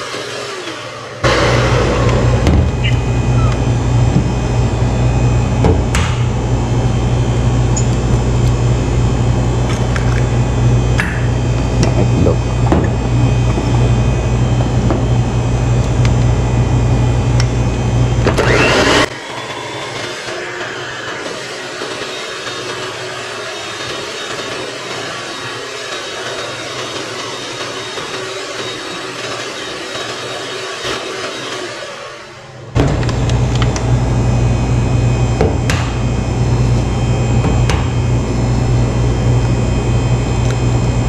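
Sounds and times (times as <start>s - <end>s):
electric hand mixer running: 0.0s - 41.0s
steady background hum: 1.2s - 21.1s, 32.4s - 41.0s.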